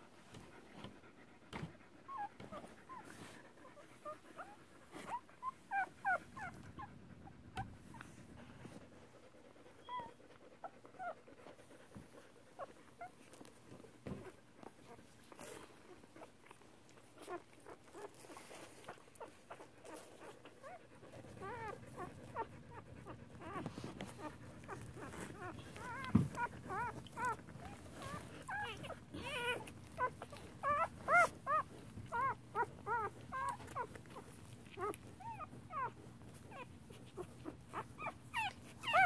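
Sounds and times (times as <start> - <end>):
soft rustles: 0.0 - 39.0
puppies squeaking and whimpering: 2.0 - 6.9, 9.7 - 11.2, 12.6 - 39.0.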